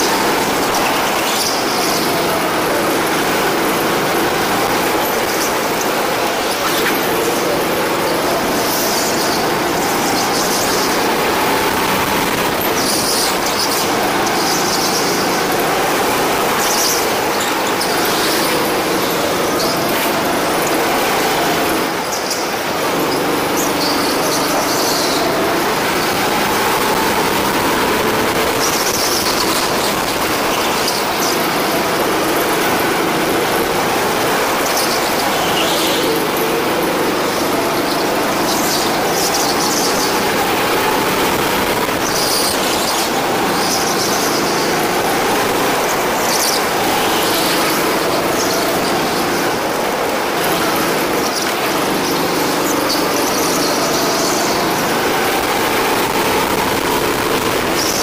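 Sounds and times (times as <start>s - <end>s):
go-kart engine running hard: 0.0s - 58.0s
tyre squeals: 0.0s - 58.0s.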